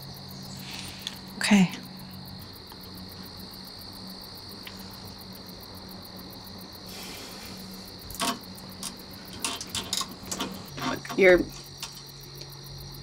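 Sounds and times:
crickets chirring: 0.0s - 13.0s
soft breathy hiss: 0.5s - 1.7s, 6.8s - 8.1s.

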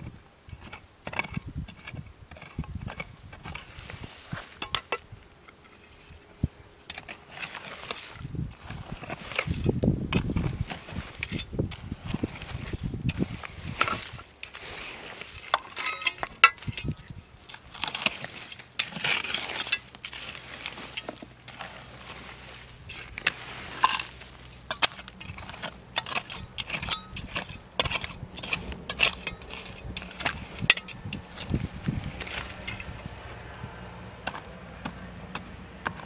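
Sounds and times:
gritty dirt scraping: 0.0s - 36.0s
metal pick clinking on stones: 4.6s - 5.0s, 15.5s - 20.2s, 22.9s - 31.5s.

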